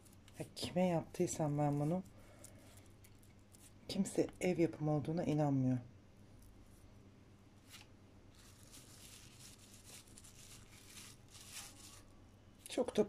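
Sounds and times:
plastic wrap rustling: 7.6 - 12.2.

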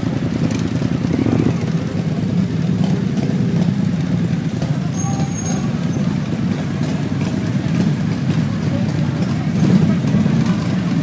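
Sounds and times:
motorcycle engines rumbling: 0.0 - 11.0.

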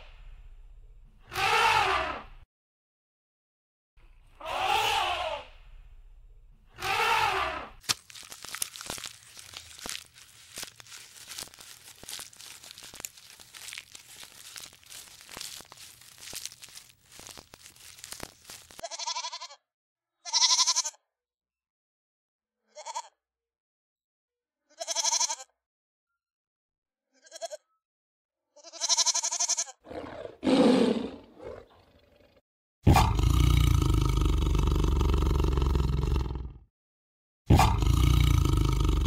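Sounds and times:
rough noisy animal call: 1.3 - 2.3, 4.4 - 5.5, 6.8 - 7.8, 9.0 - 18.8, 29.9 - 36.4
crackly clicking: 7.8 - 18.8
lion roaring: 29.8 - 36.6, 37.5 - 39.0.

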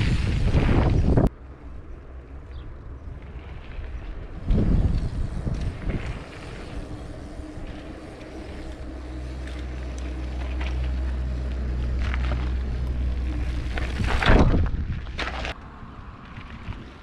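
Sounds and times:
low engine drone: 4.2 - 16.5.

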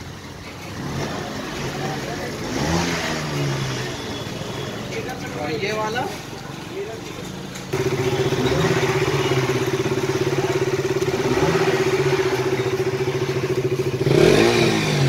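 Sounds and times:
motorcycle engine idling: 6.5 - 15.0.

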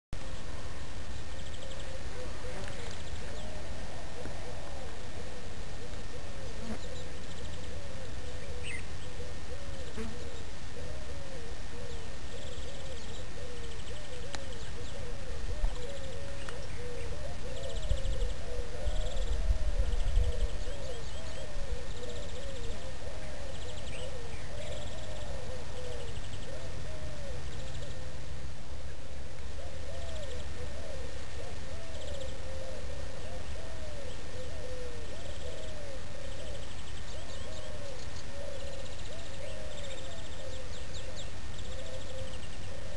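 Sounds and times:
birds calling low arching notes: 0.2 - 42.9
wind rumble on microphone: 15.4 - 22.0.

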